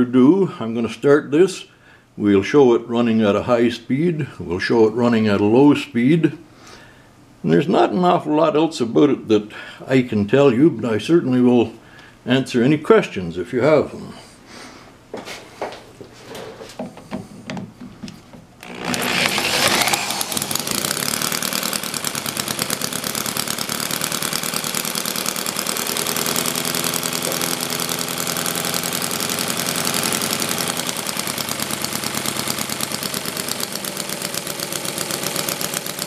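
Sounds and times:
electric drill spinning engine: 18.6s - 36.0s
model engine running: 18.6s - 36.0s.

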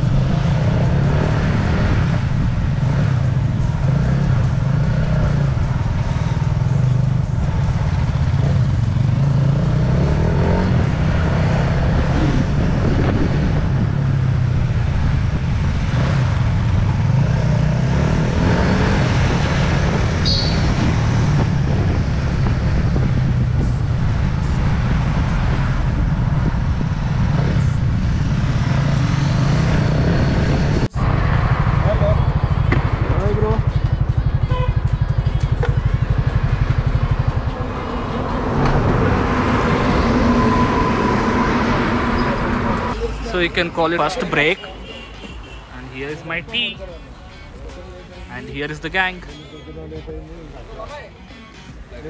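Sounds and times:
motorcycle engine running: 0.0s - 39.6s
wind and road noise: 0.0s - 52.0s.

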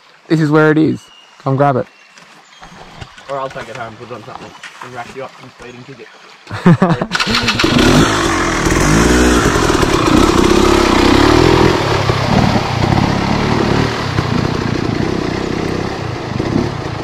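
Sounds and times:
water splashing: 2.3s - 15.7s
dirt bike engine revving: 7.1s - 17.0s.

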